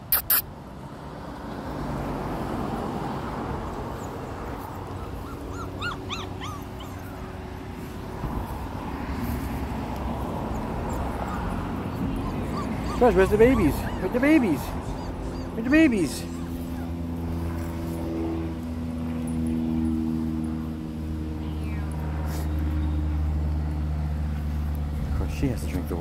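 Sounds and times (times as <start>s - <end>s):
puppy yelping: 0.1s - 0.4s, 4.8s - 7.5s, 10.4s - 17.6s
faint puppy squeaks: 0.1s - 0.5s, 5.0s - 7.4s, 10.5s - 17.6s.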